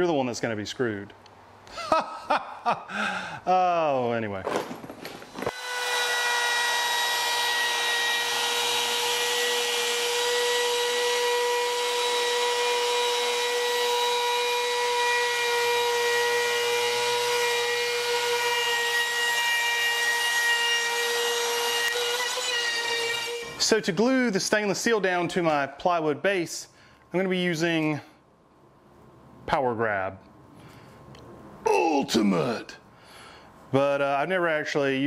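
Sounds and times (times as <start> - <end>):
router bit trimming wood: 5.5 - 23.6.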